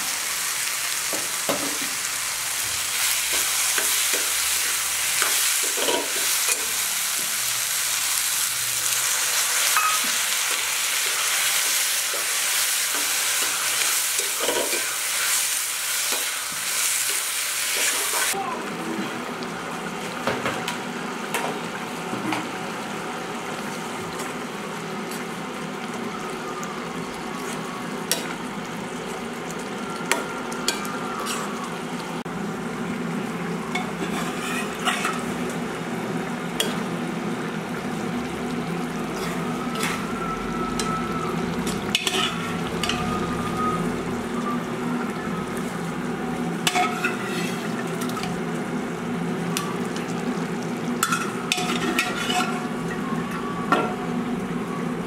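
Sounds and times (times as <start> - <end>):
gravy sizzling in a pan: 0.0 - 55.0
metal ladle scraping a pan: 34.0 - 35.2, 41.7 - 43.0, 46.7 - 47.8, 51.0 - 52.7.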